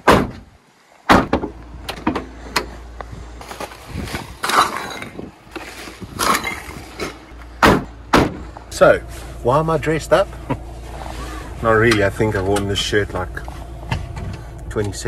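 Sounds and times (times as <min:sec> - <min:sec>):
rubbish bags thudding: 0:03.4 - 0:08.5.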